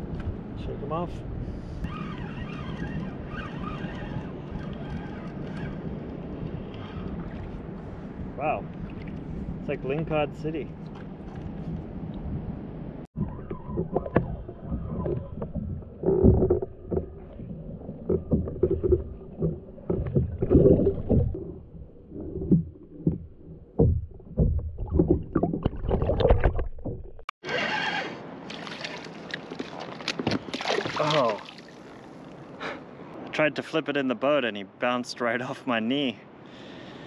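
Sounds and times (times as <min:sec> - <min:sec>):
water splashing and sloshing: 0:01.6 - 0:32.6
muffled underwater hull knocks: 0:13.2 - 0:27.3.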